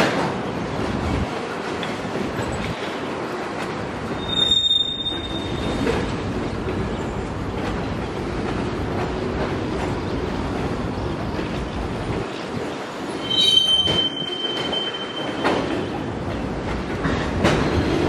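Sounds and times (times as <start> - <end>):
freight train wheels rumbling: 0.0 - 18.0
steel wheel squeal: 4.1 - 5.9, 13.1 - 15.9.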